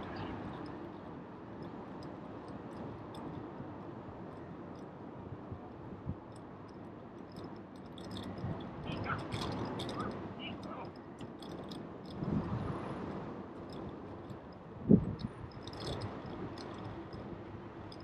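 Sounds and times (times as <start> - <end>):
bicycle tyre and wind noise: 11.5 - 18.0.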